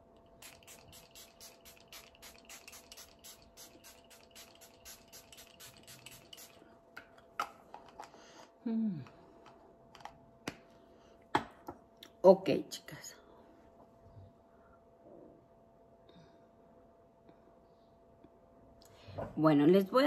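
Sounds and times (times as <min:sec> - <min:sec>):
spray bottle spritzing: 0:00.4 - 0:06.6
person humming: 0:08.6 - 0:09.2.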